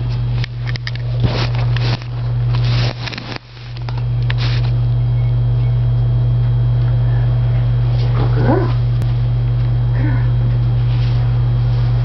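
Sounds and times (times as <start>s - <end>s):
steady low hum: 0.0s - 12.0s
brief rustling: 0.7s - 4.8s.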